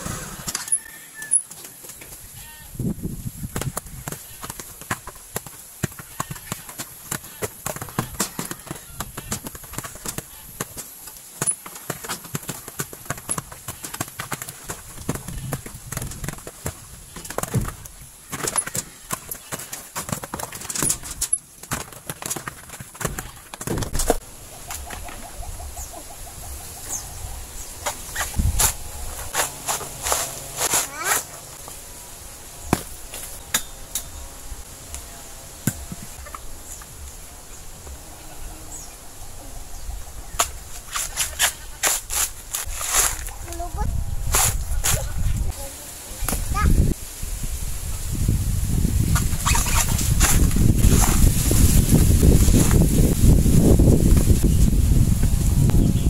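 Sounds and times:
coconuts knocking and clunking: 3.5 - 24.2.

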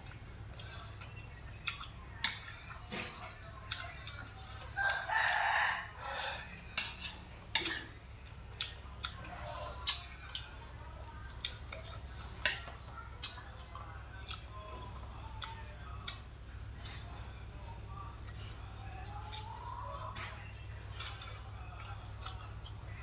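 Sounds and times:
rooster crowing: 4.8 - 6.5.

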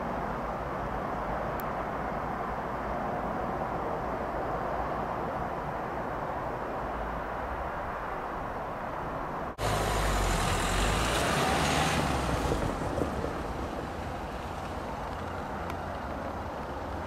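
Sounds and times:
low engine hum: 9.5 - 17.0
van engine and tyres passing: 9.5 - 17.0.

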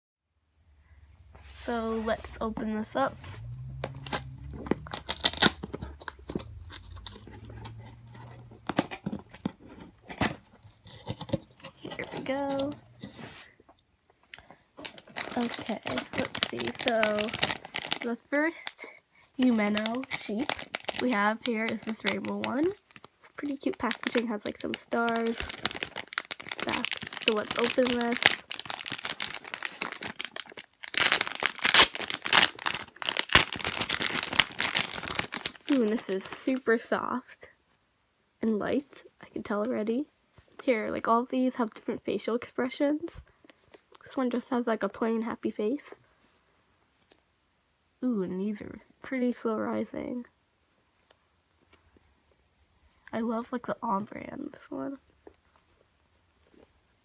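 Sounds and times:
packing tape peeled off cardboard: 3.4 - 9.4, 14.8 - 18.1, 19.4 - 35.7.

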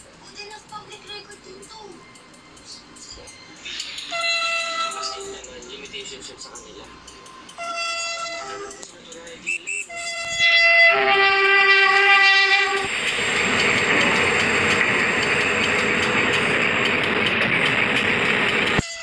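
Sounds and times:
train horn blasts: 4.1 - 5.2, 7.6 - 8.8, 9.9 - 12.9, 18.8 - 19.0
train rushing past: 10.3 - 18.8.

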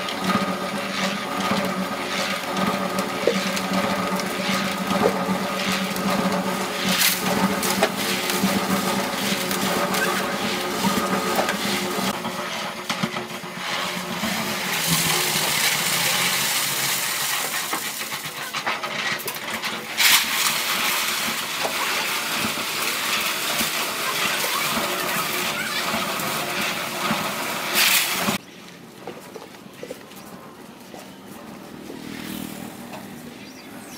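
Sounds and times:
loud clatter: 0.0 - 28.4
concrete churning in mixer drum: 0.0 - 33.9
motor hum: 31.9 - 33.9.

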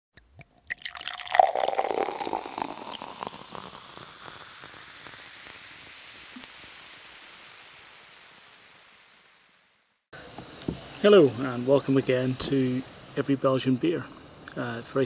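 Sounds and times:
liquid pouring with fizz: 0.2 - 9.8
faint hiss: 0.9 - 15.0.

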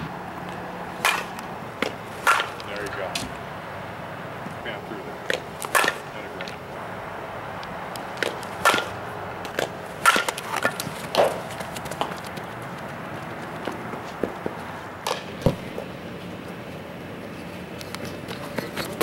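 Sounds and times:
bat hitting balls: 0.1 - 3.4, 5.2 - 6.6, 7.6 - 12.2, 13.9 - 16.0.

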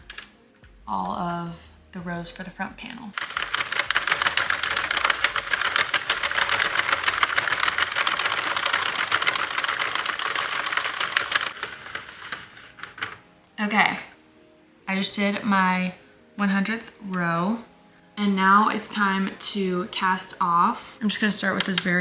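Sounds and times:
knitting machine plastic clicking: 3.2 - 13.2, 21.4 - 22.0.

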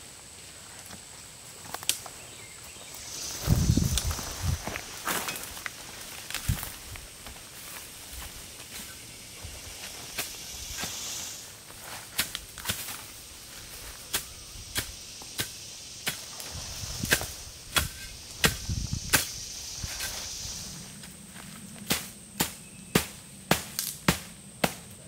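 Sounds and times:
tent stakes being hammered: 11.8 - 13.1, 14.1 - 19.4, 21.8 - 25.0.

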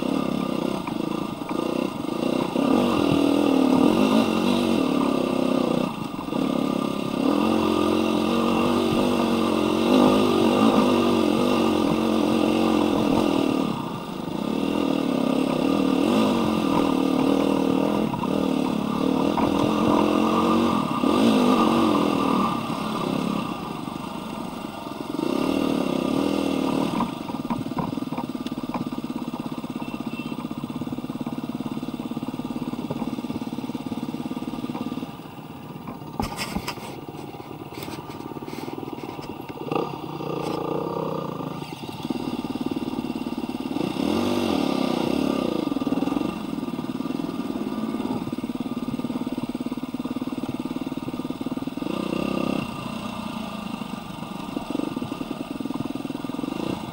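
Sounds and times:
dirt bike engine revving: 0.0 - 27.6, 36.1 - 56.9.

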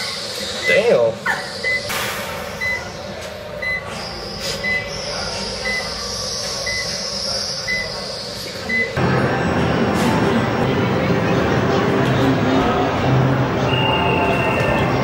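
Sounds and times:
mechanical whir and hiss: 0.0 - 11.5.

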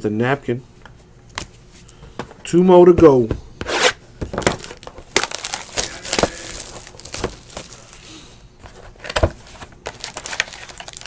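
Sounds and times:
wrapper crinkling: 4.6 - 8.2, 9.8 - 11.0.

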